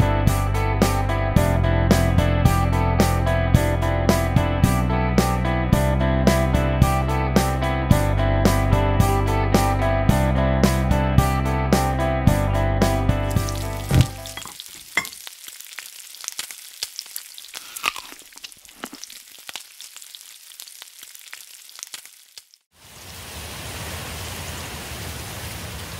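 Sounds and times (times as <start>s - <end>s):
crackling and sizzling: 13.2s - 23.5s.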